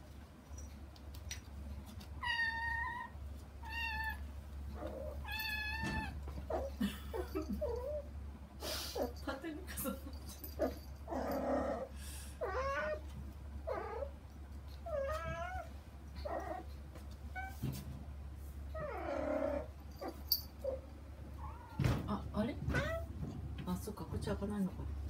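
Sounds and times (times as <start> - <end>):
steady low hum: 0.0 - 25.0
kittens meowing: 2.2 - 8.1, 10.6 - 14.2, 14.8 - 16.7.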